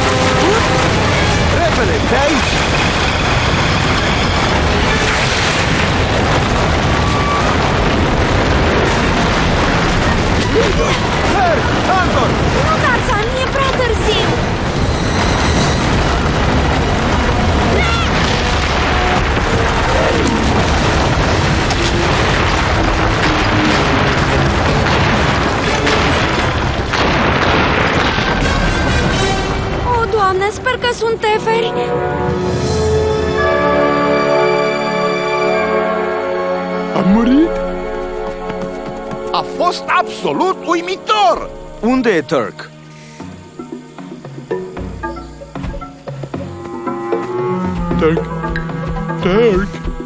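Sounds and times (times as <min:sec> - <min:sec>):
dramatic orchestral music: 0:00.0 - 0:05.8, 0:27.9 - 0:50.0
rumbling crash sound effect: 0:00.0 - 0:31.6.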